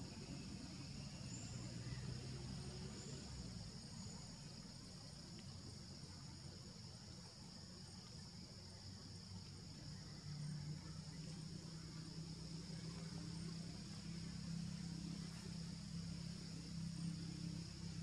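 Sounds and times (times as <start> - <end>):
high insect drone: 0.0 - 18.0.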